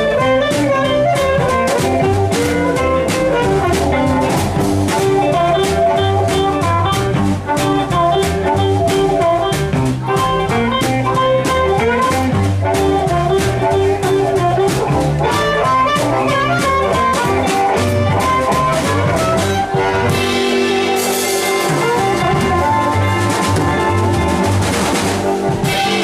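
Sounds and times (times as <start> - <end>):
amplified harmonica: 0.0 - 26.0
live blues band playing: 0.0 - 26.0
cymbals washing: 13.7 - 26.0.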